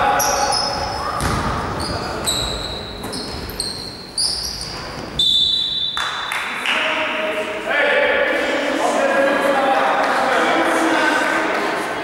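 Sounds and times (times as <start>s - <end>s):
voices in a hall: 0.0s - 12.0s
shoes squeaking on wooden floor: 0.2s - 6.0s.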